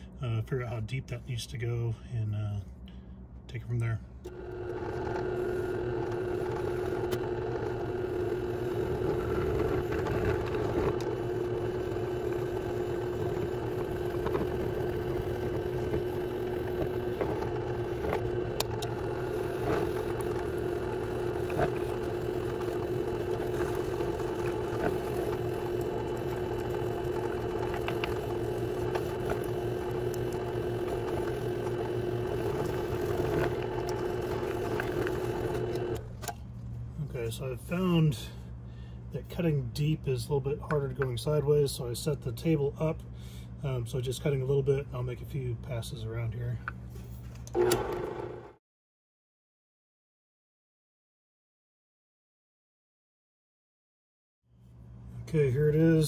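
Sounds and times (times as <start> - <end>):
drill press motor hum: 4.2 - 36.5, 47.4 - 48.6
cutter ticking on plastic: 4.3 - 36.0.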